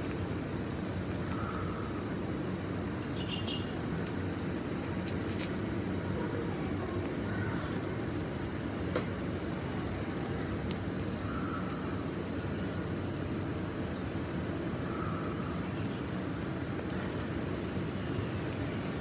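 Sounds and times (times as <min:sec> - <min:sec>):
low rumbling background noise: 0:00.0 - 0:19.0
faint clicks: 0:06.6 - 0:12.3.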